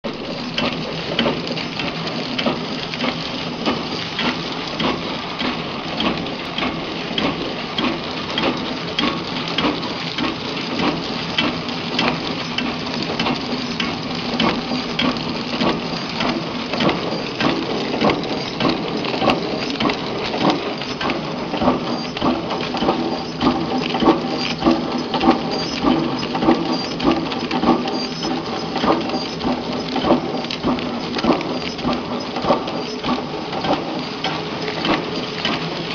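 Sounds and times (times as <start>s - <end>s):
packaging machine humming: 0.1s - 35.9s
rhythmic machine clacking: 0.1s - 35.9s.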